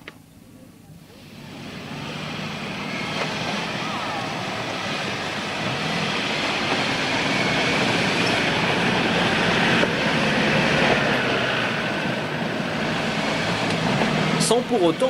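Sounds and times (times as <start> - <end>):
faint high whine: 0.1 - 8.7
vehicle engine and drivetrain noise: 1.2 - 15.0.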